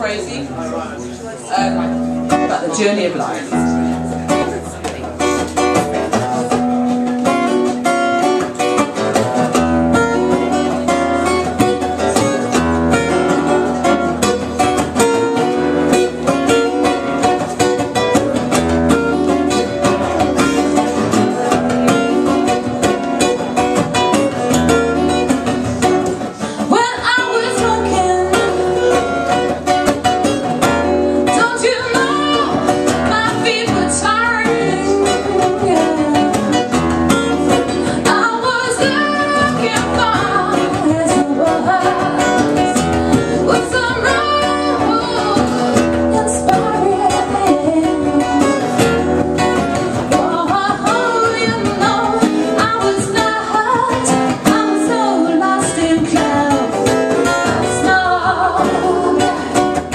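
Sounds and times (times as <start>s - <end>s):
acoustic guitars playing: 0.0s - 59.9s
woman singing: 25.0s - 59.9s.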